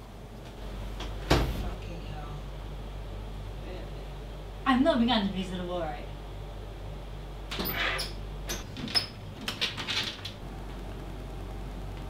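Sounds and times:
door scraping and squeaking: 0:07.5 - 0:09.2.

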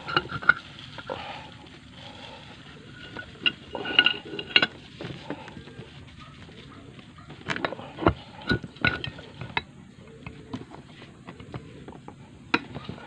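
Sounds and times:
metal tools clinking: 0:02.9 - 0:05.5, 0:07.4 - 0:09.6.

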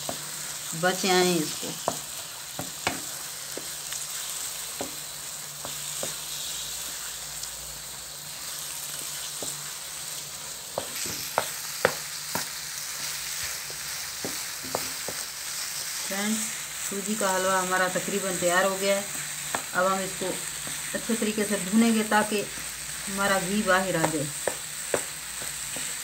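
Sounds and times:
semolina sizzling in pan: 0:00.0 - 0:26.0
spatula knocking and scraping pan: 0:01.7 - 0:03.9, 0:04.7 - 0:06.3, 0:08.9 - 0:09.7, 0:10.7 - 0:15.4, 0:19.1 - 0:19.7, 0:20.6 - 0:21.2, 0:23.9 - 0:26.0.

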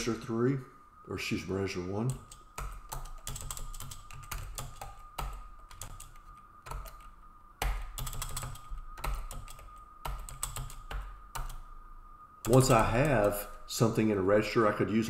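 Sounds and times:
faint high tone hum: 0:00.0 - 0:15.0
keyboard typing clicks: 0:02.1 - 0:11.6, 0:12.4 - 0:13.4.

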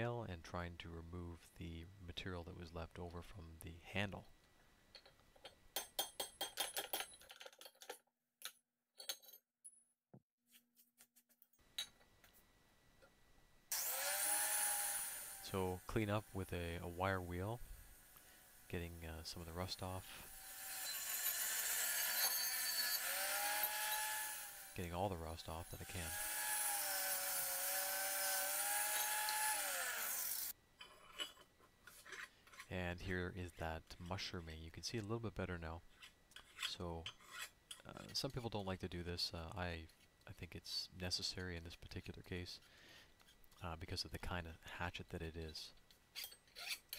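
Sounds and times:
wire wheel grinder on rusty metal: 0:13.7 - 0:30.6.

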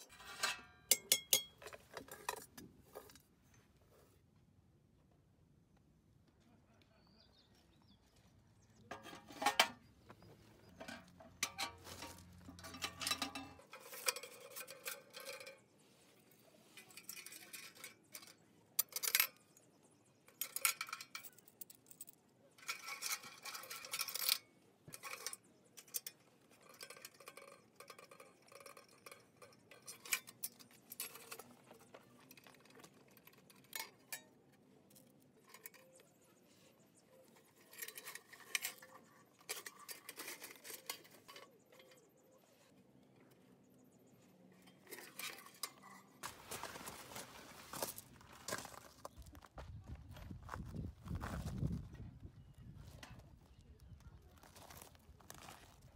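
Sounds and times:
metal clanking and scraping: 0:00.0 - 0:03.6, 0:08.6 - 0:19.6, 0:20.2 - 0:49.2.

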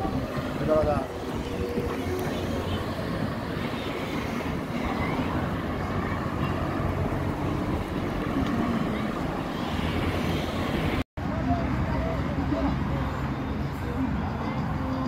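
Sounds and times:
wind rumble on microphone: 0:00.0 - 0:11.0
cars passing: 0:00.0 - 0:15.0.

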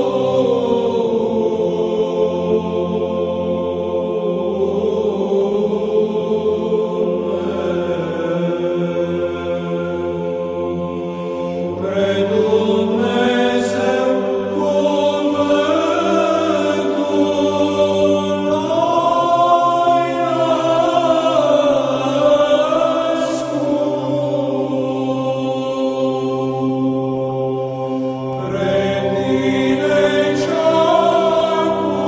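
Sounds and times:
low drone: 0:00.0 - 0:32.0
person chanting a melody: 0:00.0 - 0:32.0.

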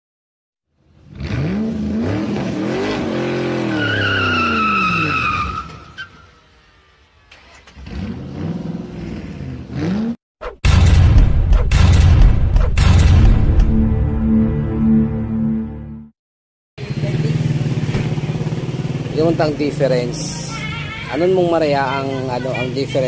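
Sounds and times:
sports car engine revving: 0:01.0 - 0:05.2, 0:06.8 - 0:10.2
tyre squeal: 0:03.5 - 0:06.4.

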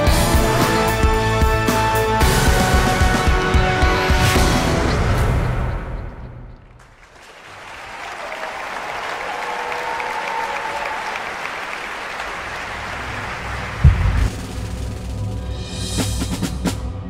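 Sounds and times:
music: 0:00.0 - 0:06.6, 0:12.6 - 0:17.0
audience applause: 0:06.8 - 0:14.6.

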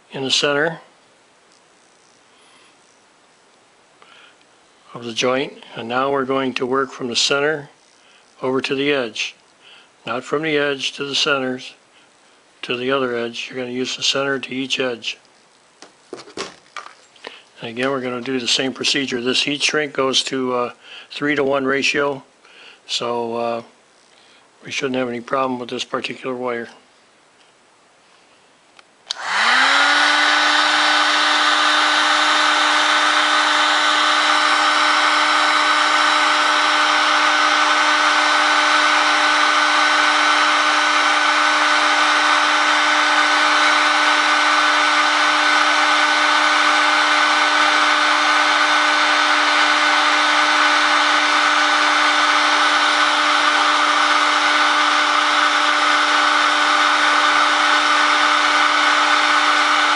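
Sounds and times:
heat gun fan whining: 0:01.5 - 0:15.2, 0:15.8 - 0:26.6, 0:28.8 - 0:59.9.

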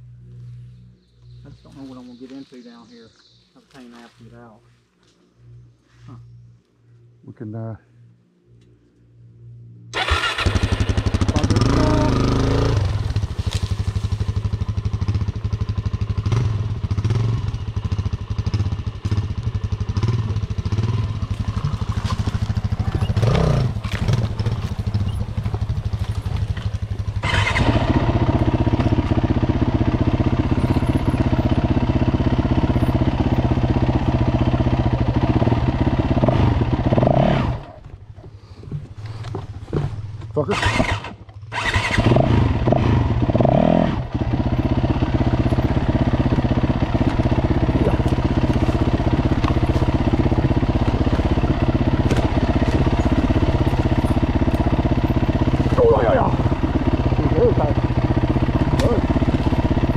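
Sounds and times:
dirt bike engine running: 0:10.0 - 0:38.1, 0:38.8 - 0:59.9.

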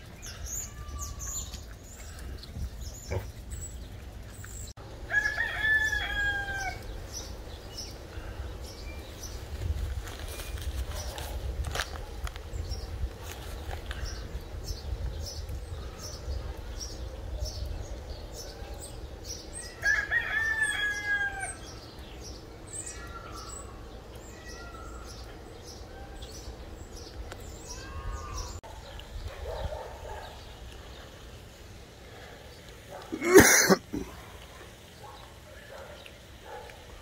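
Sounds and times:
rooster crowing: 0:05.1 - 0:06.9, 0:19.6 - 0:21.7.

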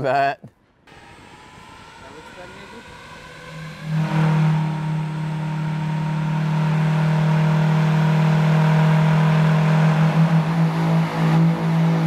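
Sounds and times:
electric fan droning and whining: 0:00.8 - 0:12.0.

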